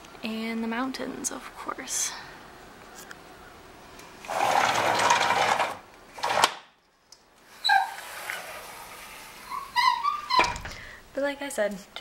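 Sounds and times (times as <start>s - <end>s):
dog yelping: 7.6s - 8.6s, 9.3s - 10.5s.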